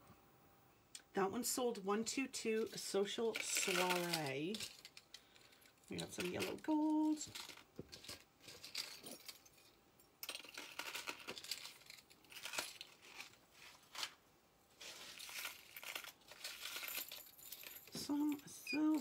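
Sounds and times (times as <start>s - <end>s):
jewelry chains clinking: 2.6s - 13.3s, 14.8s - 19.0s
rustling: 2.6s - 19.0s.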